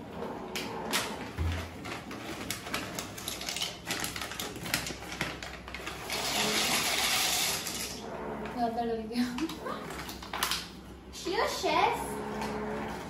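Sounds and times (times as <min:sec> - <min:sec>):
plastic packet crinkling: 0:01.4 - 0:08.0
dry pasta pouring into pot: 0:06.0 - 0:08.0.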